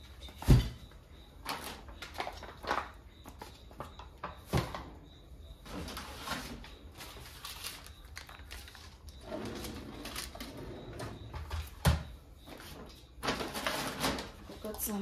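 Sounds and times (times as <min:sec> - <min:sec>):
plastic packaging rustling: 0:01.4 - 0:04.2, 0:05.6 - 0:10.5, 0:12.5 - 0:14.9.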